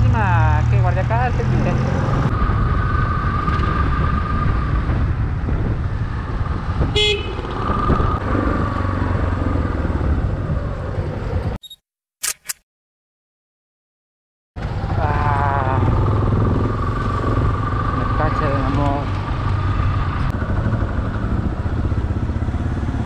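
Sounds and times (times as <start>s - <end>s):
motorcycle riding with wind: 0.0s - 11.6s, 14.6s - 23.0s
vehicle horn toot: 6.9s - 7.4s
short clicks: 11.6s - 12.6s.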